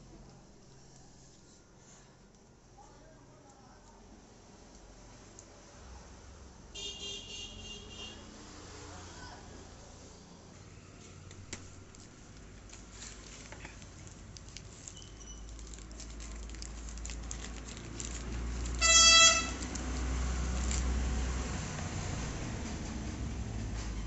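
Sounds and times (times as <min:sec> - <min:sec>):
low traffic rumble: 0:03.8 - 0:24.0
vehicle horn honking: 0:06.8 - 0:08.3, 0:18.8 - 0:19.6
plastic packaging crinkling: 0:11.2 - 0:21.2.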